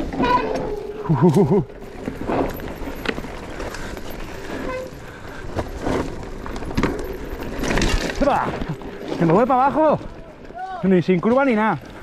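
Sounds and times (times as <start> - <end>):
bike tyres on rough trail: 0.0 - 12.0.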